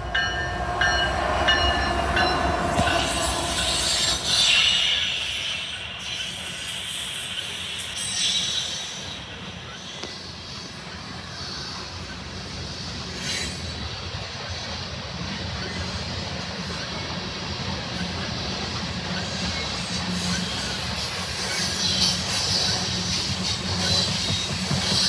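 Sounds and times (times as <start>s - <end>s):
train car clank: 0.0s - 5.4s
train wheels rumbling on rails: 0.0s - 25.0s.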